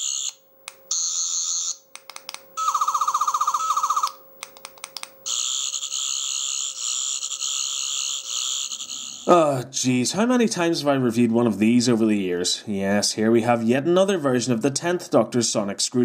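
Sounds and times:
toy electronic warbling buzzes: 0:00.0 - 0:01.8, 0:02.6 - 0:09.6
small clicks: 0:01.9 - 0:02.5, 0:04.4 - 0:05.2
pulsing electronic tone: 0:02.6 - 0:04.2, 0:05.2 - 0:09.4.

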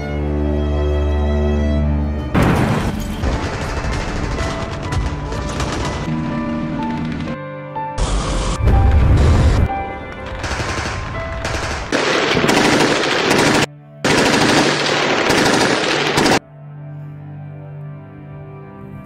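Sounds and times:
background music: 0:00.0 - 0:19.0
machine-gun fire: 0:02.4 - 0:06.1, 0:10.4 - 0:16.4.

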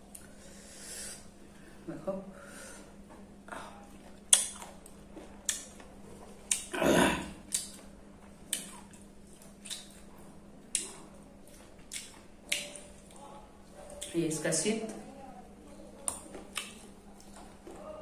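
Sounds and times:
wet mouth chewing smacks: 0:04.2 - 0:05.9, 0:06.5 - 0:06.7, 0:07.4 - 0:13.2, 0:13.9 - 0:14.2, 0:16.0 - 0:17.8.

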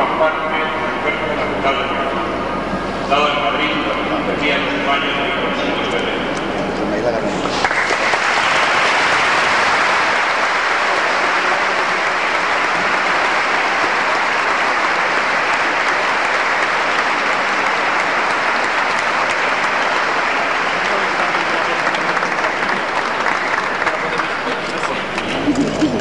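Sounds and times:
crowd applauding: 0:07.5 - 0:26.0.

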